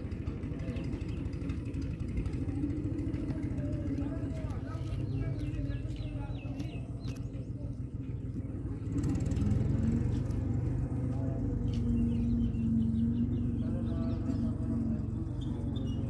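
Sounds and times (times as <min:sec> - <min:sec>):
small bird chirping: 0:04.8 - 0:08.9, 0:11.6 - 0:16.0.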